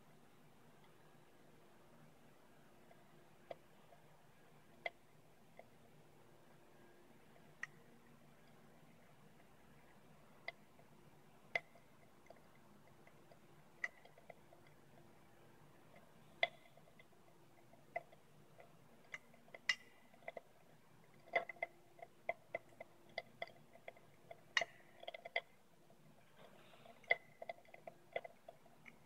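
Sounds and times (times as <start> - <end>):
chemical reaction popping: 3.0 - 29.0.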